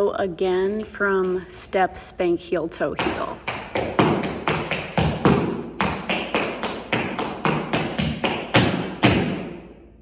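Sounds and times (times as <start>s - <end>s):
tap shoes on hard floor: 0.6s - 1.7s, 2.9s - 9.6s.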